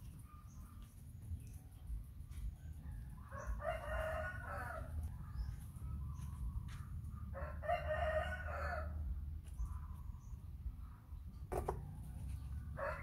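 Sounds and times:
rooster crowing: 0:03.2 - 0:05.0, 0:07.3 - 0:09.0, 0:12.8 - 0:13.0.

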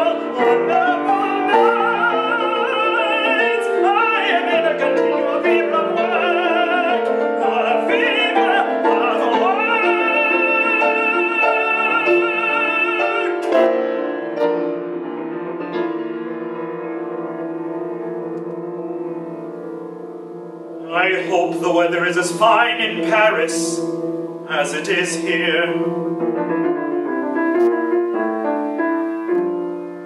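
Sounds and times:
operatic tenor singing: 0:00.0 - 0:14.3, 0:20.8 - 0:26.2
grand piano accompaniment: 0:00.0 - 0:30.0.

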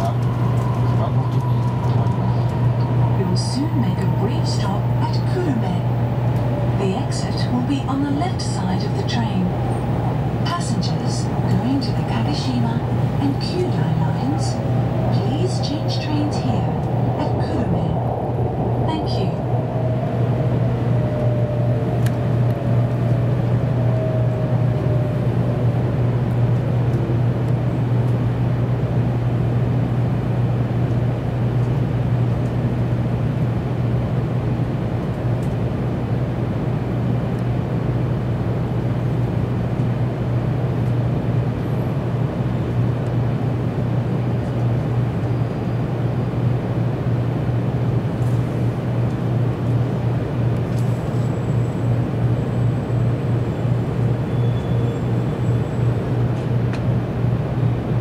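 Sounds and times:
falling whine: 0:00.0 - 0:27.9
train hum and rumble: 0:00.0 - 0:58.0.

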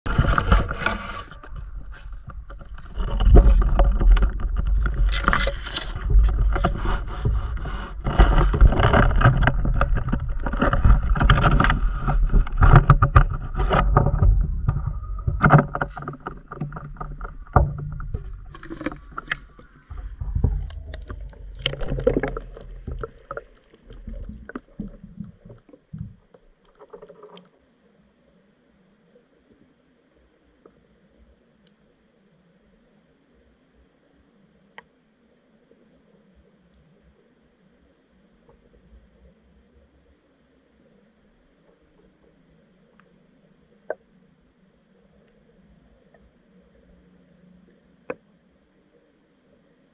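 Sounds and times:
water sounds: 0:00.0 - 0:32.7
heavy low rumble: 0:00.1 - 0:23.3.

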